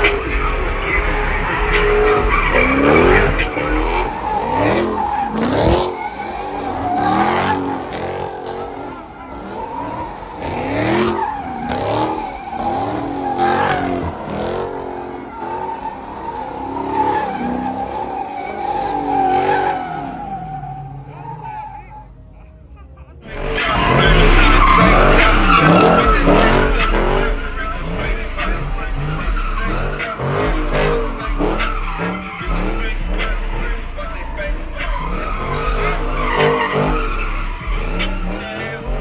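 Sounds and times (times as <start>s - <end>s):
car engines revving: 0.0s - 39.0s
tires screeching: 0.0s - 39.0s.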